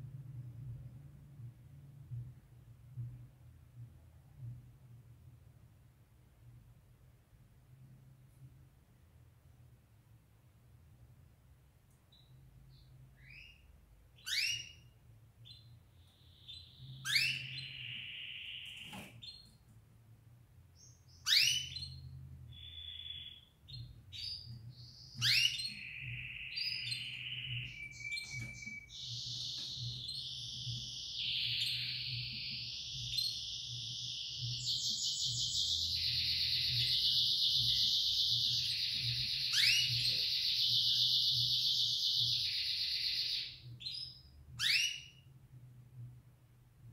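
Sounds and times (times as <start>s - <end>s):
canary singing: 12.1s - 19.6s, 20.8s - 45.3s.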